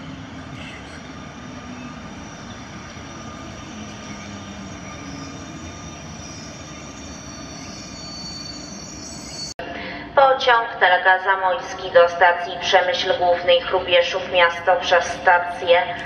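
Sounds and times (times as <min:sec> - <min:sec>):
train rolling rumble: 0:00.0 - 0:09.6.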